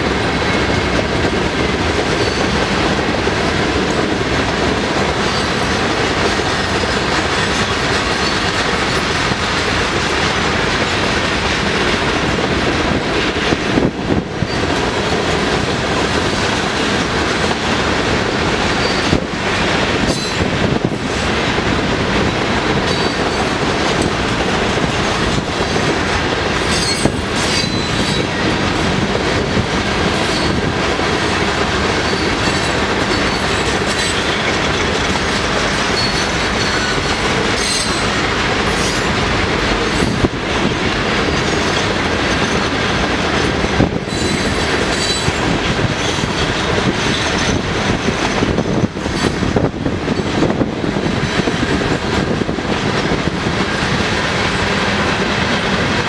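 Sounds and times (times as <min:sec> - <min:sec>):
train wheels rolling on rails: 0:00.0 - 0:56.0
high wheel squeals: 0:26.7 - 0:28.3, 0:35.3 - 0:38.1, 0:44.1 - 0:45.4.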